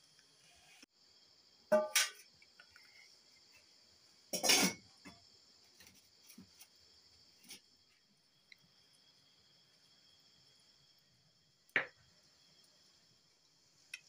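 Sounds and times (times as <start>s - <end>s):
insects chirring: 0.1s - 14.0s
steel kitchenware clanking: 4.3s - 4.9s.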